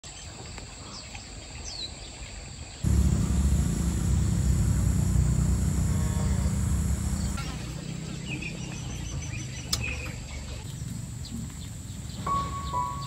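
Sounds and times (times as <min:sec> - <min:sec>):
low mechanical hum: 0:02.8 - 0:07.5.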